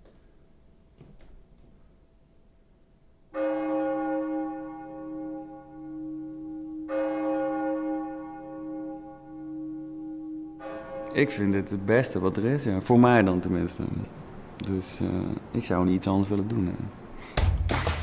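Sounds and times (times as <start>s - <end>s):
deep church bell tolling: 3.3s - 13.8s.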